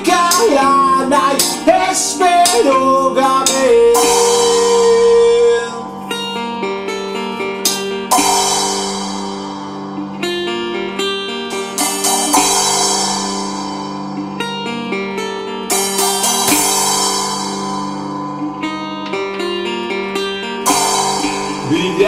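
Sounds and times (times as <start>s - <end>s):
drums: 0.0s - 5.5s, 7.7s - 9.9s, 11.4s - 14.6s, 15.7s - 18.3s, 20.6s - 22.0s
resonator guitar melody: 0.0s - 22.0s
low held note: 2.5s - 7.5s
cymbal crashing: 3.4s - 6.5s, 7.6s - 10.3s, 11.5s - 14.6s, 15.7s - 18.4s, 20.6s - 22.0s.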